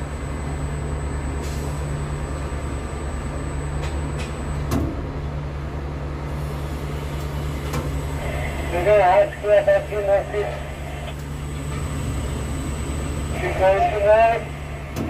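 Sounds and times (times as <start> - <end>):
crane machinery hum: 0.0 - 15.0.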